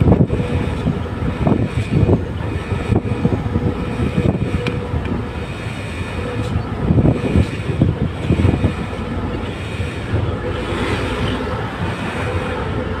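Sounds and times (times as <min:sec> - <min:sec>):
road and wind noise: 0:00.0 - 0:13.0
truck diesel engine running: 0:00.0 - 0:13.0.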